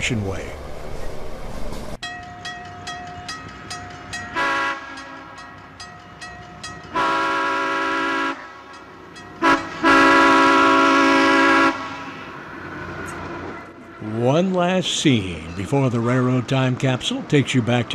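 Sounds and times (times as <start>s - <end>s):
locomotive air horn blasts: 4.3s - 5.4s, 6.9s - 8.8s, 9.4s - 12.5s.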